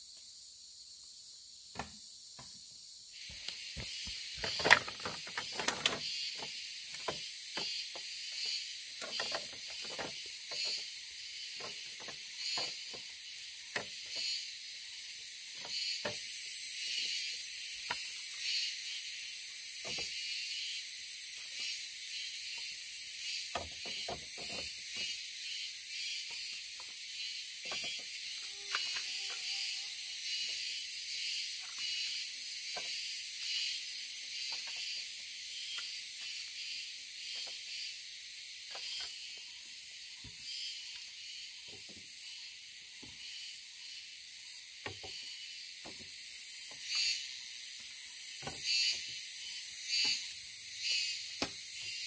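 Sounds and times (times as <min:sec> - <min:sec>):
forest insects chorus: 0:00.0 - 0:52.0
bamboo pieces knocking: 0:03.2 - 0:10.9.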